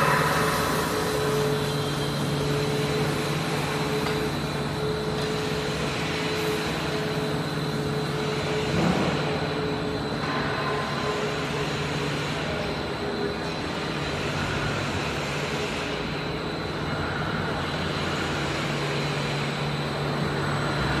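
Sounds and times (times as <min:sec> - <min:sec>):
high-pitched whine: 0:00.0 - 0:14.8
machinery hum: 0:00.0 - 0:21.0.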